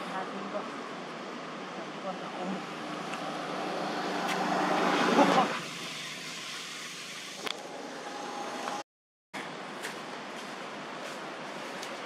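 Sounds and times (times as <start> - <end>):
motor vehicle engine: 2.2 - 6.2.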